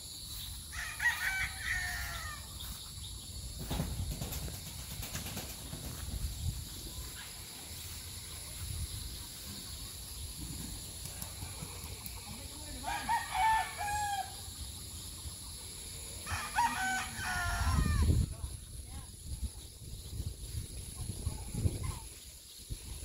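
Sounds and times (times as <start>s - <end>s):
rooster crowing: 0.7s - 2.5s, 12.8s - 14.5s, 16.2s - 18.2s
low wind rumble: 17.2s - 23.0s.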